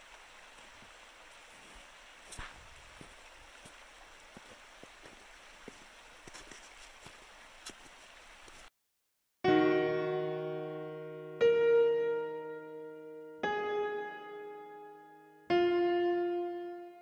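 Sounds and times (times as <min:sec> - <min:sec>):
creek water rushing: 0:00.0 - 0:08.7.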